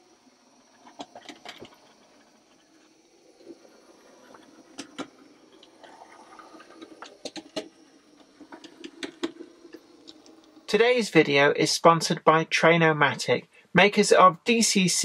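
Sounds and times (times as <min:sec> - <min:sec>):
wheels clicking over rail joints: 0:00.0 - 0:10.8
faint motor hum: 0:00.0 - 0:15.0.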